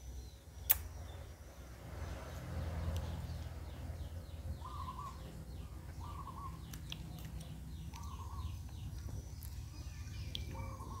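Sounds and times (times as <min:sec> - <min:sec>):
bird calls: 0:03.0 - 0:11.0.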